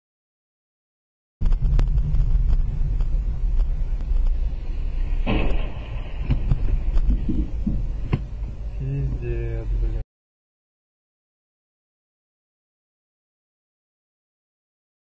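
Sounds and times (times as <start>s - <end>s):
short rushing noise: 1.4s - 8.0s
car driving low rumble: 1.4s - 10.0s.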